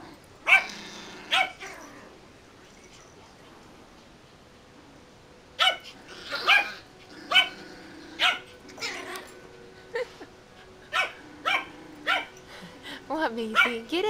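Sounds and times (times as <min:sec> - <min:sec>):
puppies yapping: 0:00.4 - 0:01.9, 0:05.6 - 0:10.0, 0:10.9 - 0:12.4.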